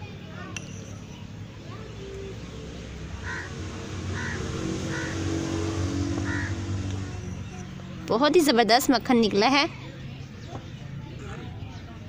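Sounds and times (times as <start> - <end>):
vehicle engine running: 1.8 - 8.4.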